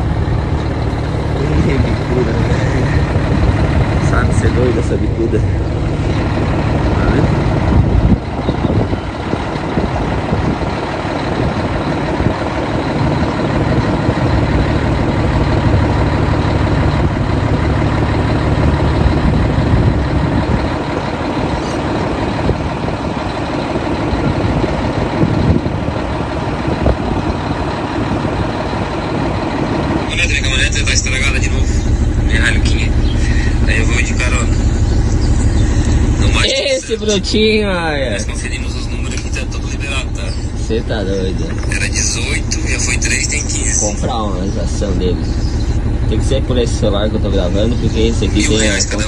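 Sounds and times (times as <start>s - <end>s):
diesel truck engine idling: 0.0s - 49.0s.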